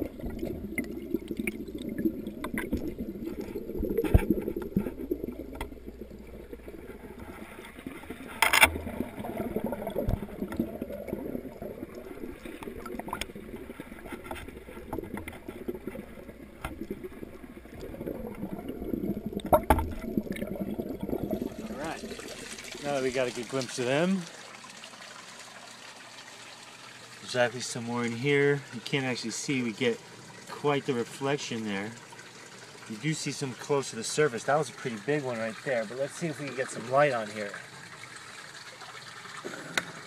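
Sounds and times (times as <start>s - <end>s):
muffled underwater water sloshing: 0.0s - 24.2s.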